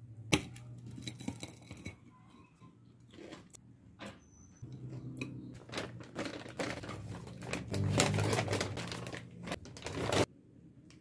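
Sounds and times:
shopping bags crinkling: 5.6s - 10.3s.

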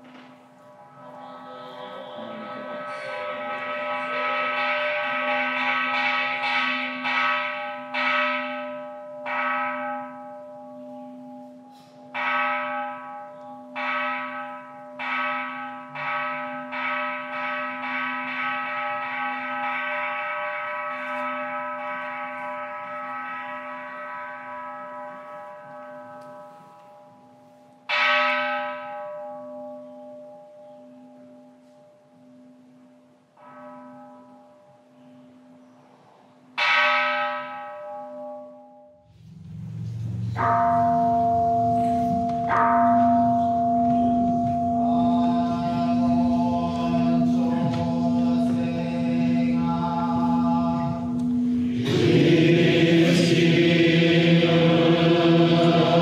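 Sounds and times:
temple bell struck with mallet: 2.0s - 24.0s, 39.2s - 56.0s.

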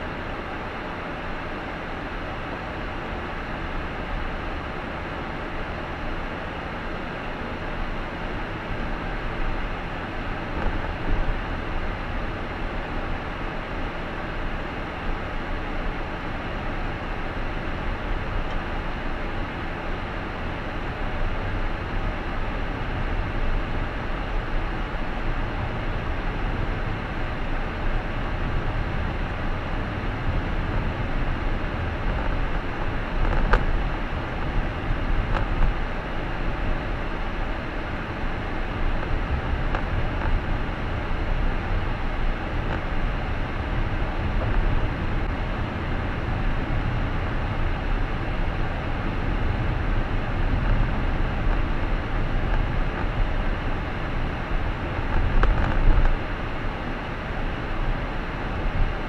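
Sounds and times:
car driving heard from inside: 19.8s - 56.8s.

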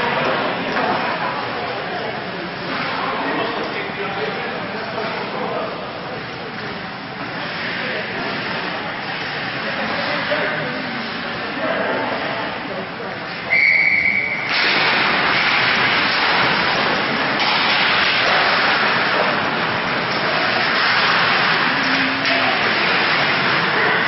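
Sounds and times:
referee's whistle: 13.5s - 14.5s
loud steady rushing noise: 13.5s - 24.0s.

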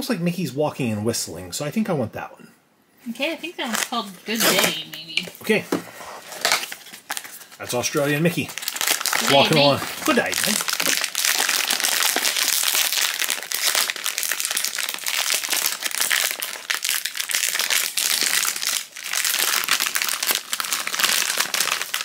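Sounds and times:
foil pouch crinkling: 6.2s - 22.0s.

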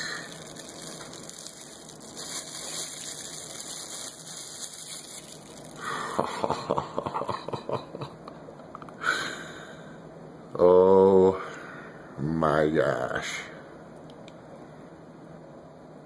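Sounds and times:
bubble wrap rustling and crackling: 0.0s - 6.3s.

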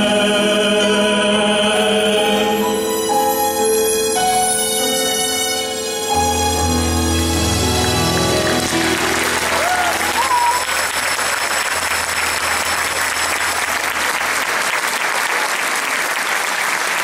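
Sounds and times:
audience applauding: 7.5s - 17.0s.

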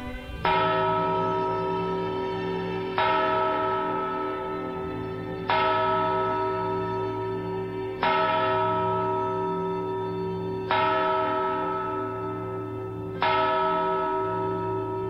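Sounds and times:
large bell tolling: 0.0s - 15.0s.

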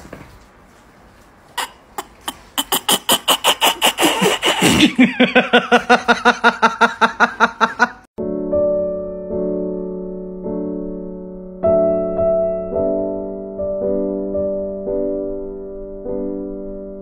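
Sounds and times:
piano music: 8.2s - 17.0s.

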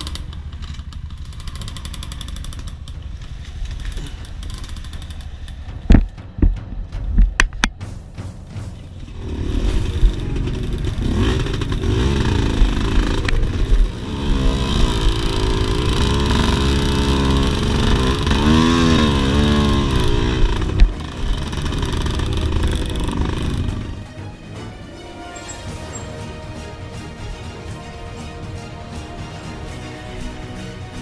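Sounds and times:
dirt bike engine revving: 0.0s - 5.8s, 9.1s - 24.1s.

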